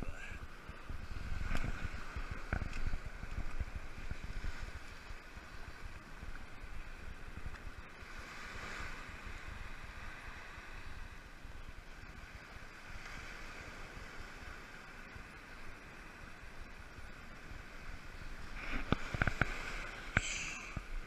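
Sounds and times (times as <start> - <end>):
wind buffeting microphone: 0.0 - 14.5
small surf washing on beach: 0.0 - 21.0.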